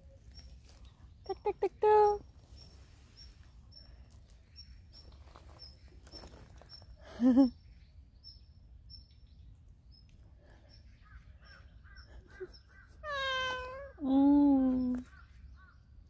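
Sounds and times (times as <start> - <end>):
faint bird chirps: 0.0 - 16.0
cat meowing: 13.0 - 14.0.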